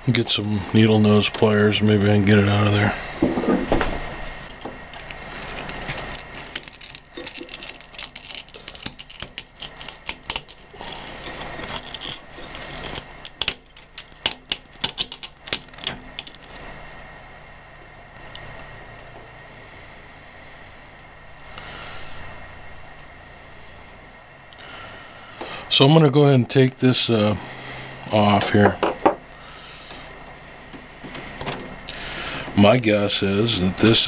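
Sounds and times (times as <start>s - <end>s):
low steady hum: 0.0s - 34.0s
pliers clicking and scraping: 5.0s - 16.6s.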